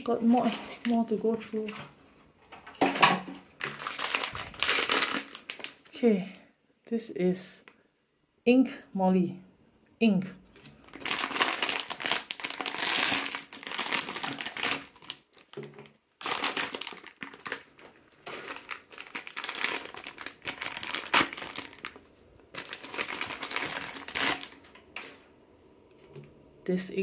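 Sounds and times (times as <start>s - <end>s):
foil and plastic crinkling: 2.9s - 6.0s, 10.6s - 25.2s.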